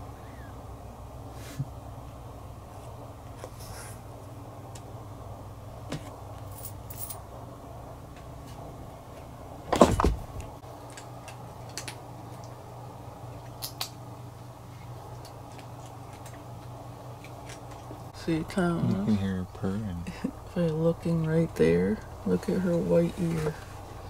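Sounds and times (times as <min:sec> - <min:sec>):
cat crunching dry kibble: 0:15.1 - 0:18.0.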